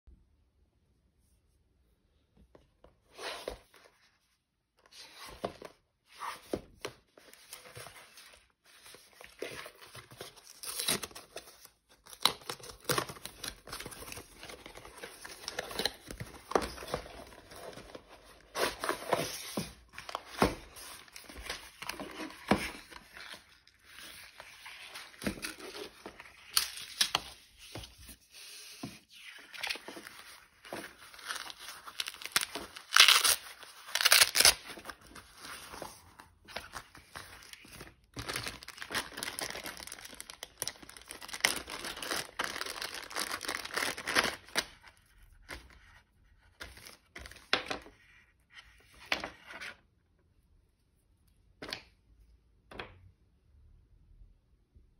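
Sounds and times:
packaging rustling and scraping: 5.0 - 44.6.

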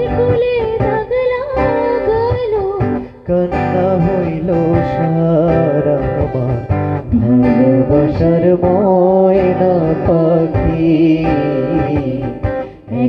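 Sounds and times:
woman singing: 0.0 - 5.0, 7.1 - 13.0
acoustic guitar strumming: 0.0 - 13.0
man singing: 3.2 - 13.0.

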